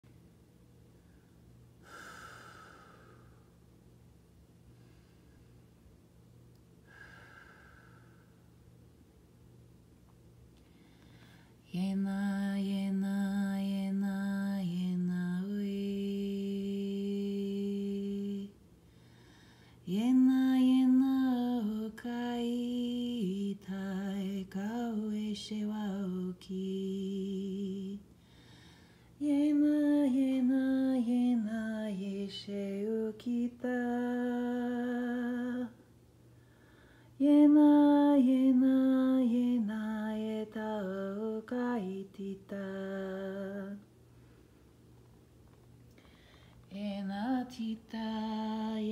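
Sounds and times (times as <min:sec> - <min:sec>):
woman singing unaccompanied: 0:11.6 - 0:18.6, 0:19.8 - 0:28.0, 0:29.2 - 0:35.8, 0:37.2 - 0:43.8, 0:46.7 - 0:48.9.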